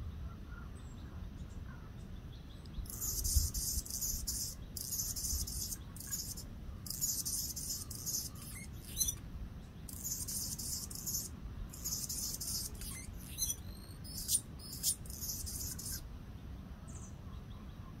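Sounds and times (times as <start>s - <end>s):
hummingbird singing high phrases: 2.6s - 16.1s
sharp bird chips: 2.7s - 9.2s, 9.9s - 16.0s.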